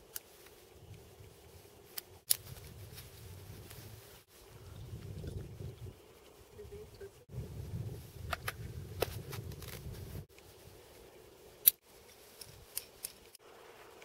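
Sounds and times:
metallic clicks of climbing gear: 0:11.6 - 0:14.0.

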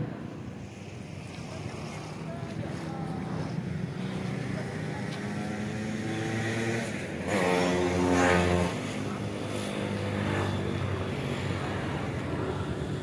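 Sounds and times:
engine running: 0:00.0 - 0:13.0.

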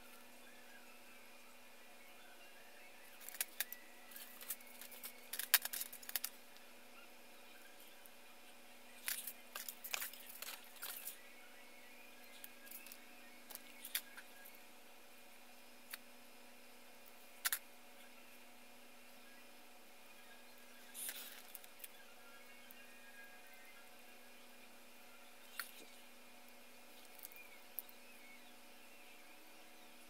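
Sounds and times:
plastic parts clicking and rattling: 0:03.2 - 0:06.4, 0:09.0 - 0:11.2, 0:12.3 - 0:14.3, 0:17.4 - 0:17.6.

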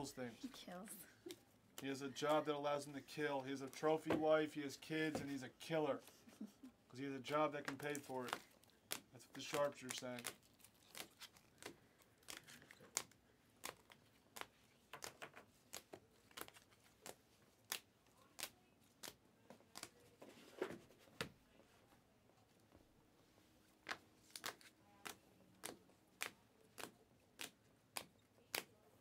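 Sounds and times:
cards in plastic sleeves flipping: 0:07.6 - 0:20.0, 0:23.8 - 0:28.7.

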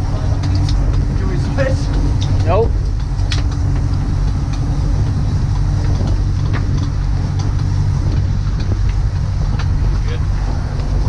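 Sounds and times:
boat engine droning: 0:00.0 - 0:11.0
sea noise: 0:00.0 - 0:11.0
wind: 0:00.0 - 0:11.0.

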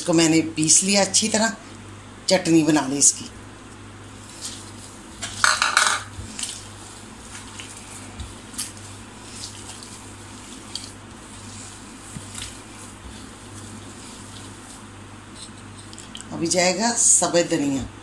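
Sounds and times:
hand squishing wet mash: 0:03.5 - 0:05.4, 0:06.1 - 0:16.3.

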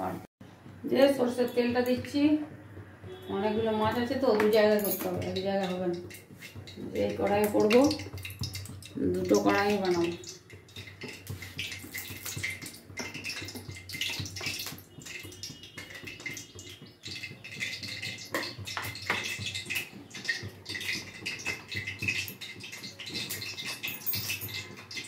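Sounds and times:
small clicks and crackles: 0:04.2 - 0:25.0
oil pouring into metal pan: 0:06.0 - 0:25.0.

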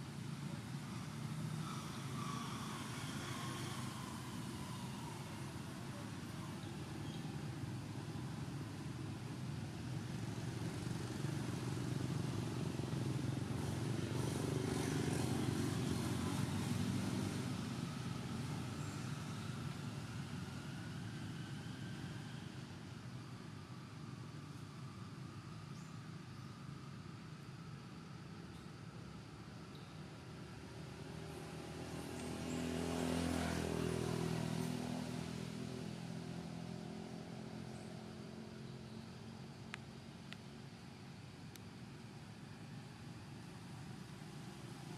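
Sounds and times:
distant motor traffic rumble: 0:00.0 - 0:44.9
vehicle engine passing by: 0:00.6 - 0:07.1, 0:10.1 - 0:22.6, 0:30.6 - 0:39.1.

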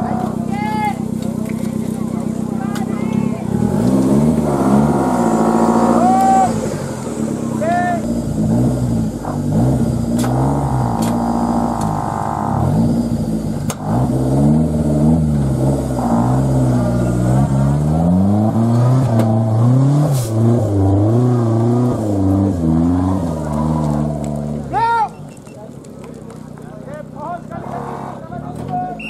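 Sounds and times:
off-road engine revving: 0:00.0 - 0:29.0
steady high whine: 0:02.2 - 0:17.2.

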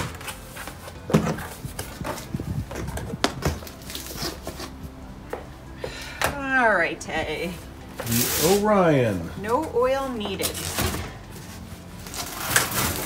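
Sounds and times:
cardboard flaps rustling: 0:00.0 - 0:04.9.

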